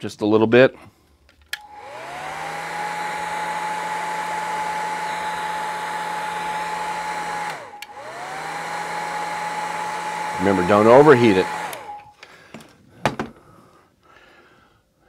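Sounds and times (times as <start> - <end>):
heat gun fan whine: 1.5 - 12.6.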